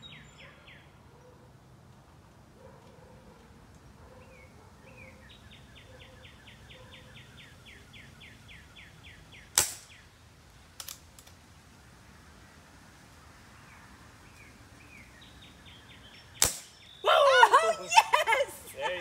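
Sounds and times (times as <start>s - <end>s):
air pistol firing crack: 9.5s - 10.0s, 16.4s - 16.8s
songbird trilling: 14.3s - 17.1s.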